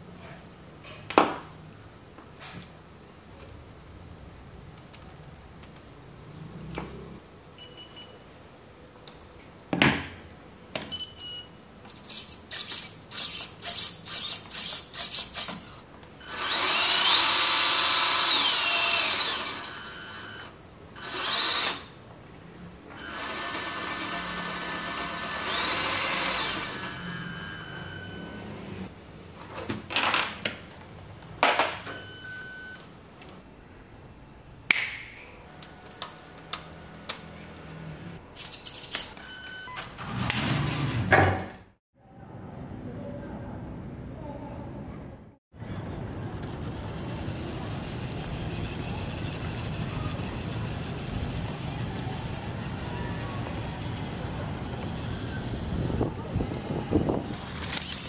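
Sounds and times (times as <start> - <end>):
motor whine rising and falling: 16.2 - 21.9, 23.0 - 28.9
small electric motor buzzing: 16.2 - 21.9, 23.0 - 28.2.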